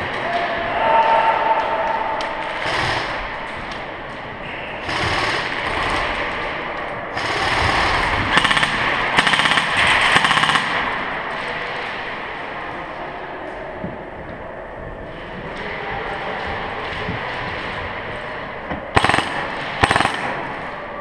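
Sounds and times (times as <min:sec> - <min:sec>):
airsoft guns firing bursts: 0:02.5 - 0:03.7, 0:04.8 - 0:11.2, 0:18.9 - 0:20.8.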